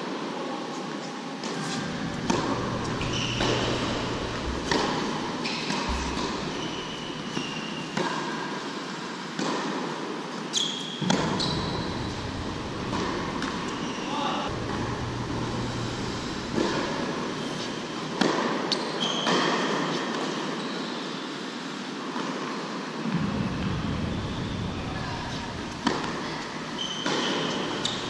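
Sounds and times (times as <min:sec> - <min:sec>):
steady background hiss: 0:00.0 - 0:28.0
shoes squeaking on court: 0:01.5 - 0:08.1, 0:10.5 - 0:18.0, 0:18.7 - 0:21.0, 0:25.9 - 0:28.0
tennis ball struck and bouncing: 0:01.8 - 0:08.2, 0:11.0 - 0:13.9.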